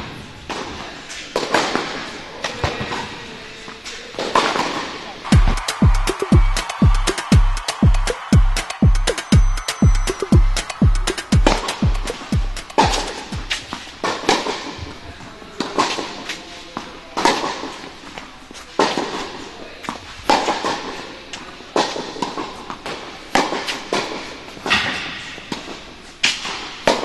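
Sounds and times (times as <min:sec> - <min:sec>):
tennis balls struck by rackets: 0:00.0 - 0:03.1, 0:03.7 - 0:08.4, 0:09.1 - 0:14.9, 0:15.6 - 0:16.4, 0:17.2 - 0:18.2, 0:18.8 - 0:27.0
tennis balls bouncing on court: 0:03.7 - 0:15.0, 0:19.8 - 0:27.0.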